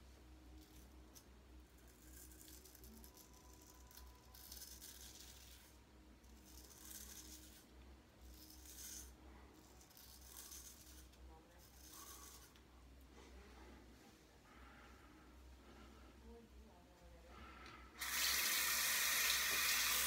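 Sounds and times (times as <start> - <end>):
razor scraping stubble: 0.6 - 12.7.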